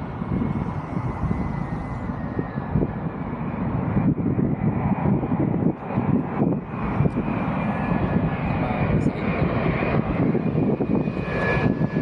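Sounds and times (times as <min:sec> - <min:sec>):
faint high jet whine: 0:00.0 - 0:12.0
jet airliner rumble: 0:00.0 - 0:12.0.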